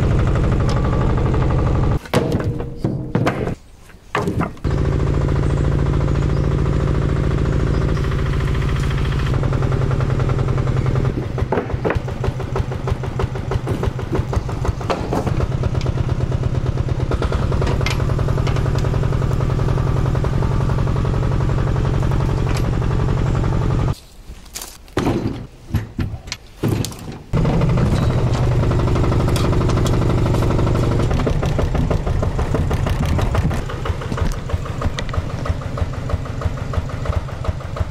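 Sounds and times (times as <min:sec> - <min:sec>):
small tiller engine running: 0:00.0 - 0:02.0, 0:04.6 - 0:24.0, 0:27.3 - 0:37.9
branches clattering onto steel trailer: 0:23.9 - 0:35.5.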